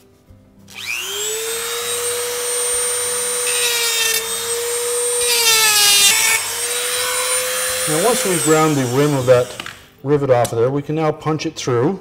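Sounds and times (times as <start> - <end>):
rotary tool grinding metal: 0.7 - 9.9
rotary tool motor whine: 0.7 - 9.9.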